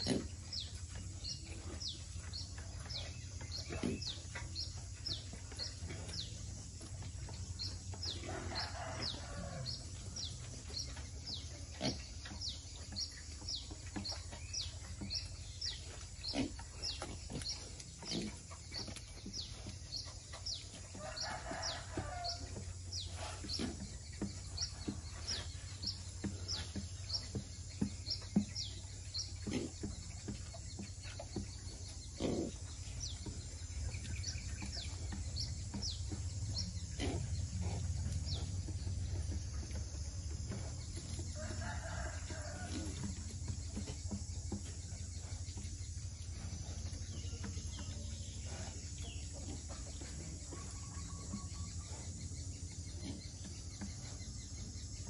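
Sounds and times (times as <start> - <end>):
steady low hum: 0.0 - 55.0
drawn-out animal call: 11.3 - 25.6.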